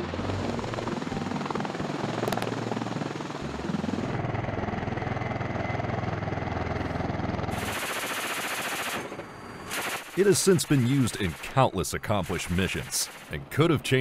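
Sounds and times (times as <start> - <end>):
turbine engines: 0.0 - 13.8
helicopter rotors chopping: 0.0 - 14.0
hissing rush: 9.7 - 13.4.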